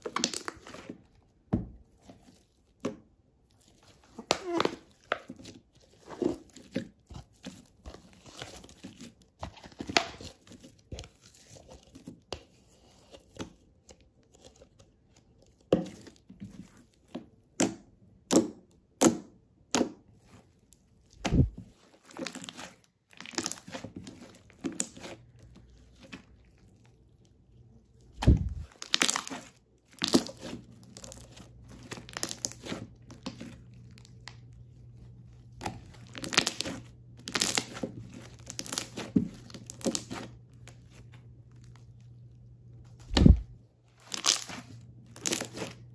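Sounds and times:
slime crackling and popping: 0.0s - 0.9s, 21.2s - 23.9s, 28.1s - 34.6s, 35.5s - 40.8s, 43.0s - 45.9s
deep dull slime pops: 28.2s - 28.7s, 43.0s - 43.6s.

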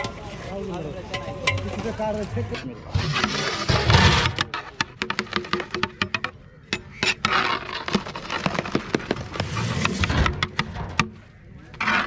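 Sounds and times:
metal ladle scraping a pot: 2.9s - 6.1s, 11.7s - 12.0s.

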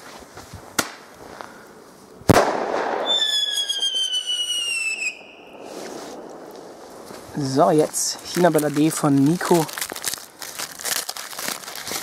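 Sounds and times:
firecracker bang: 2.3s - 7.4s
whistling firework falling in pitch: 2.3s - 7.4s.

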